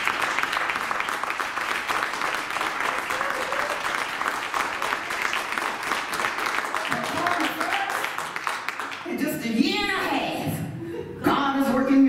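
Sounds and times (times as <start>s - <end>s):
congregation clapping: 0.0s - 9.3s.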